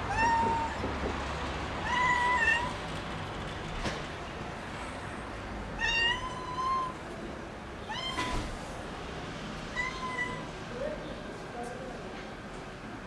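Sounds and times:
cat meowing: 0.0s - 0.8s, 1.8s - 2.8s, 5.8s - 7.0s, 7.8s - 8.5s, 9.7s - 10.5s.

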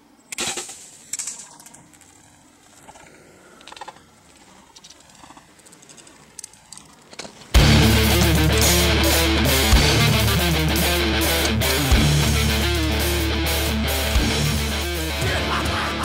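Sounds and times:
faint rustles and clicks: 0.4s - 7.6s.

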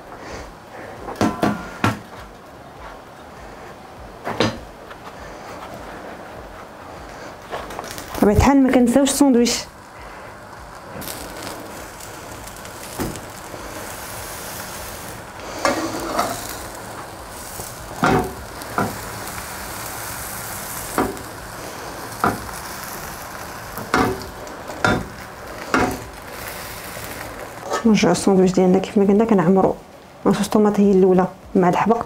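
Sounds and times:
sandwiches sizzling on griddle: 7.1s - 28.1s
metal spatula scraping pan: 15.6s - 16.5s.

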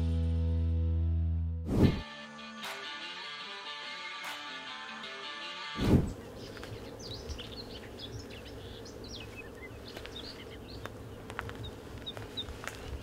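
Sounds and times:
small birds chirping: 6.0s - 13.0s.

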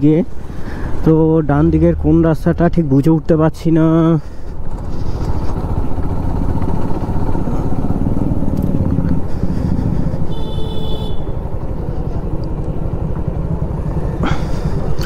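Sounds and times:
motorcycle engine running: 4.3s - 15.0s.

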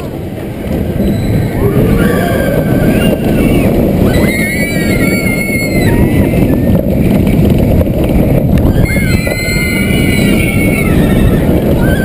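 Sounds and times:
roller coaster running on track: 0.0s - 12.0s
wind rumble: 0.0s - 12.0s.

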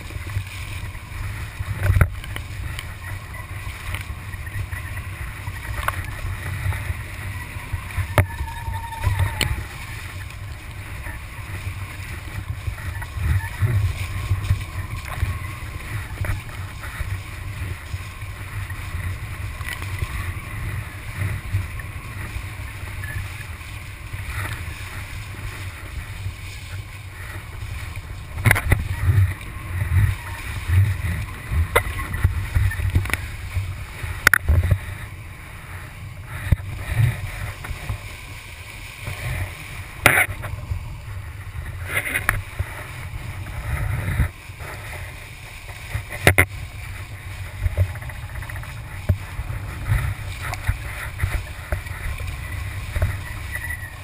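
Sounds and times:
board slapping water: 0.0s - 35.0s, 35.7s - 54.0s
low rumble: 0.0s - 54.0s
wind buffeting microphone: 0.0s - 54.0s.

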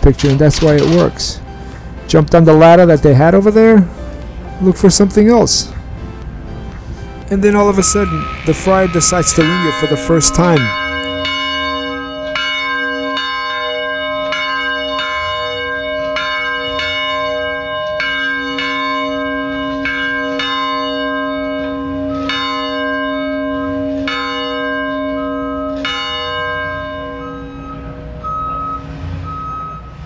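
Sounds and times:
church bell ringing: 7.2s - 30.0s.

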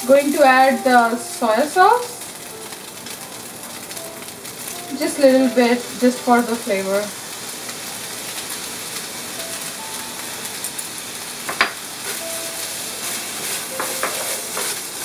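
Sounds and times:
vegetables sizzling in frying pan: 0.0s - 15.0s
spatula stirring: 12.0s - 15.0s.

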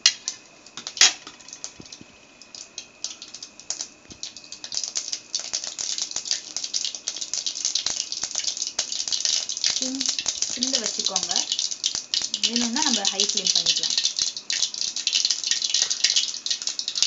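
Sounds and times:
mustard seeds popping in hot fat: 0.0s - 17.0s.

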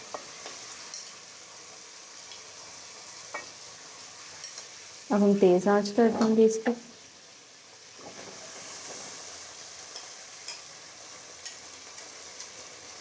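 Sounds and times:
meat sizzling in hot oil: 0.0s - 13.0s.

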